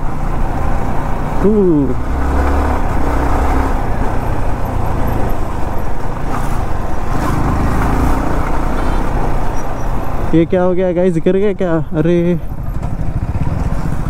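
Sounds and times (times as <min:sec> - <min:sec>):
wind and road noise: 0:00.0 - 0:14.0
motorcycle engine running: 0:12.0 - 0:14.0.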